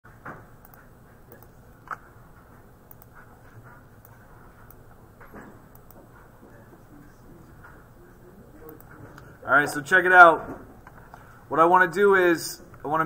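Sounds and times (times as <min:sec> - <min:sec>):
faint room noise: 0:00.1 - 0:13.0
computer mouse clicking: 0:00.6 - 0:02.0, 0:02.8 - 0:03.3, 0:05.7 - 0:06.1.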